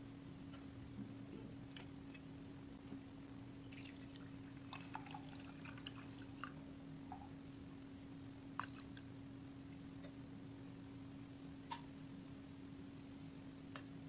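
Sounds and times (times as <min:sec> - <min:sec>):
water trickling into glass: 0:03.7 - 0:06.6.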